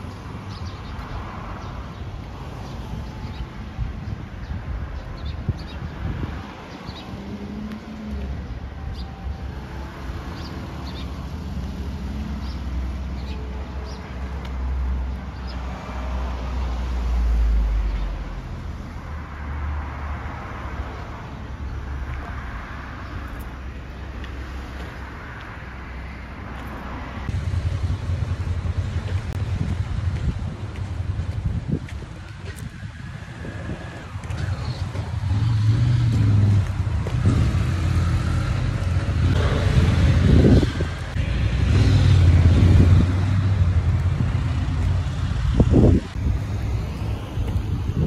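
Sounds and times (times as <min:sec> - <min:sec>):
cars passing on road: 0:00.0 - 0:48.0
wind on microphone: 0:02.9 - 0:07.6, 0:27.3 - 0:48.0.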